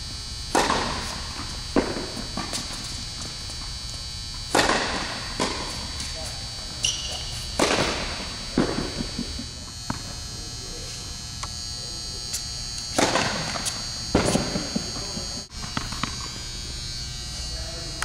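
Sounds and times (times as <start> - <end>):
steady high-pitched whine: 0.0 - 18.0
tennis balls struck with rackets: 0.5 - 3.3, 4.5 - 6.2, 6.8 - 10.1, 12.9 - 16.2
tennis balls bouncing on court: 0.5 - 3.8, 4.4 - 10.1, 13.0 - 16.2.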